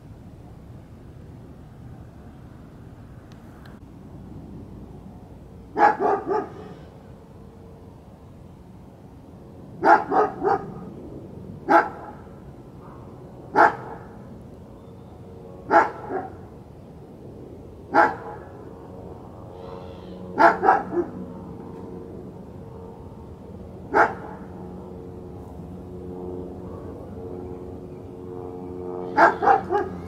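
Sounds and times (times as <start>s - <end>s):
dog barking: 5.8s - 6.8s, 9.8s - 10.9s, 11.7s - 12.2s, 12.8s - 14.0s, 15.7s - 16.4s, 17.9s - 18.4s, 20.4s - 21.2s, 23.9s - 24.4s, 29.1s - 30.0s.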